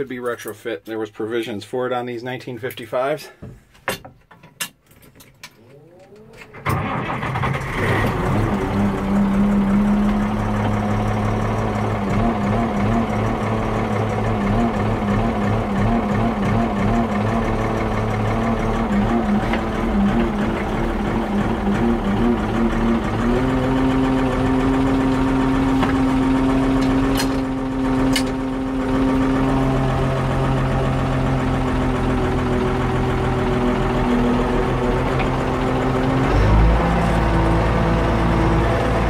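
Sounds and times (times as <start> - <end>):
tractor engine running: 5.5 - 39.0.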